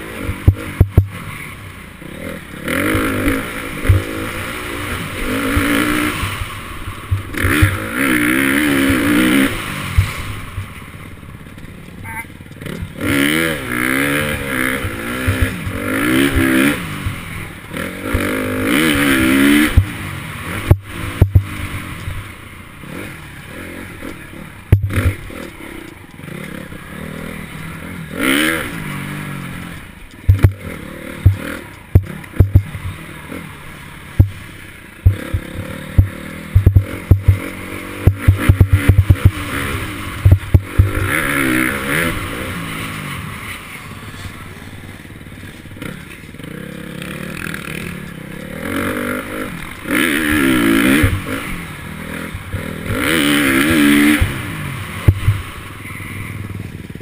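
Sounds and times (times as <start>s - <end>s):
dirt bike engine revving: 0.0s - 57.0s
knocks and rattles over bumps: 14.2s - 17.2s, 24.0s - 26.6s, 29.8s - 33.1s, 34.1s - 39.5s.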